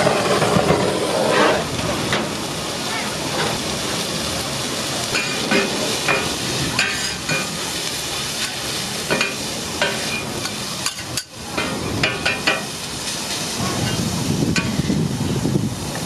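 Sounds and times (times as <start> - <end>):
metal spatulas scraping griddle: 0.0 - 1.7, 5.2 - 7.6, 8.4 - 14.0
meat sizzling on a griddle: 0.0 - 16.0.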